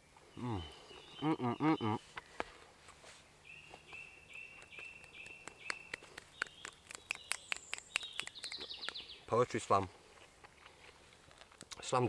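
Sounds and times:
thin high birdsong: 0.2 - 9.8
fingers snapping: 4.3 - 9.1.

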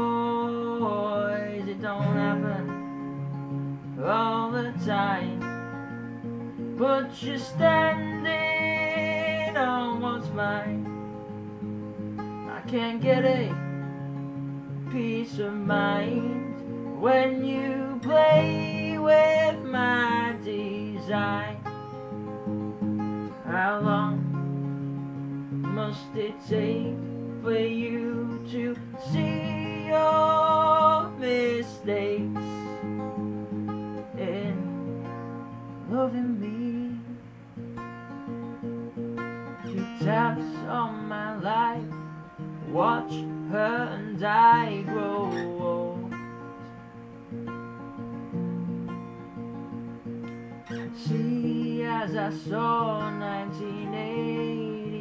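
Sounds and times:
man singing: 0.0 - 2.9, 4.0 - 5.6, 6.8 - 10.9, 12.5 - 13.8, 14.8 - 21.7, 23.3 - 24.4, 25.6 - 33.0, 34.1 - 34.9, 35.9 - 37.3, 39.7 - 46.2, 50.7 - 55.0
acoustic guitars playing: 0.0 - 55.0.

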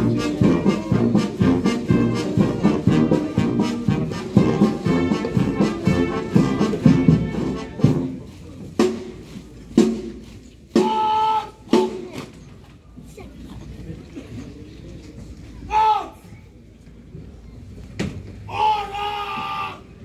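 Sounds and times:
military brass band playing a march: 0.0 - 12.1.

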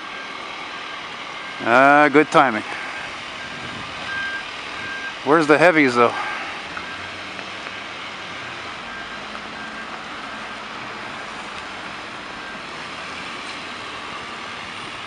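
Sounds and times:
street traffic noise: 0.0 - 15.0
truck engine running: 0.0 - 15.0
backup alarm beeps: 2.7 - 5.2, 6.8 - 11.5, 12.1 - 13.1.

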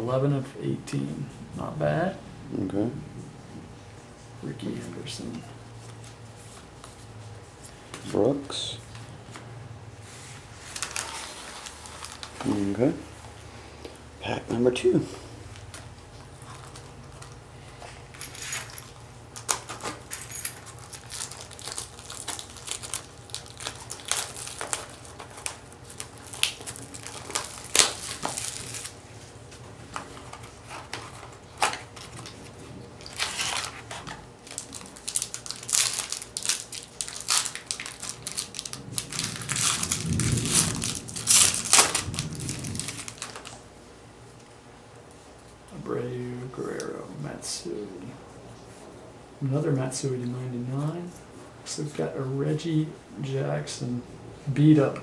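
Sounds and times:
foil wrapper crinkling and tearing: 10.6 - 12.8, 15.6 - 17.4, 19.3 - 29.1, 29.9 - 43.6.

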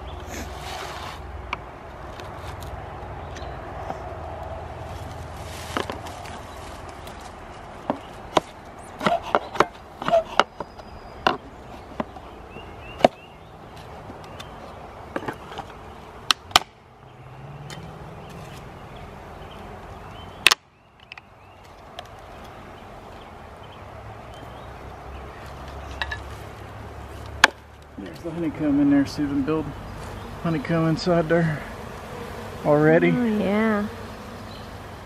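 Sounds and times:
wooden slats cracking: 16.3 - 16.8, 27.4 - 27.7.

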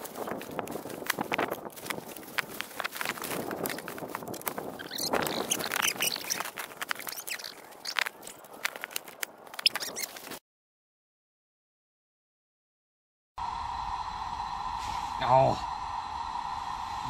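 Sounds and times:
footsteps crunching in snow: 0.0 - 10.4
frame clicks and squeaks: 4.8 - 10.4.

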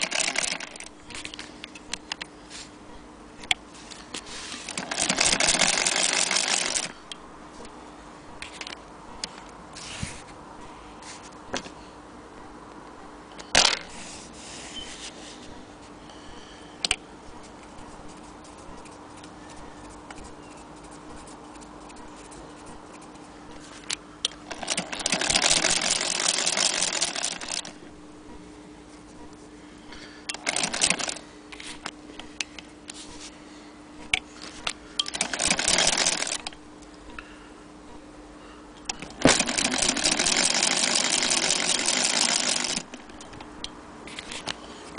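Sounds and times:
sewing machine clatter: 0.0 - 0.9, 4.7 - 6.9, 24.5 - 27.7, 30.4 - 31.2, 35.1 - 36.5, 39.0 - 43.1
faint steady hum: 0.0 - 44.9.

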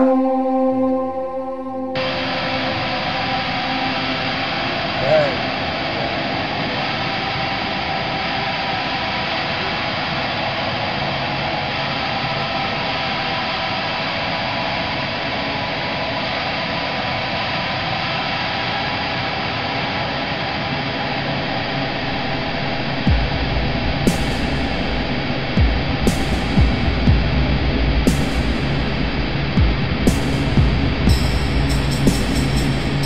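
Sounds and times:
steady hiss: 22.8 - 33.0.

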